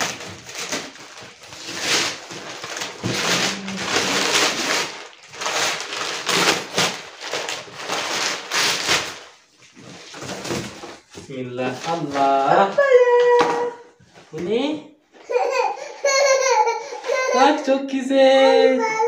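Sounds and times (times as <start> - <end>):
paper and cardboard rustling: 0.0 - 12.8.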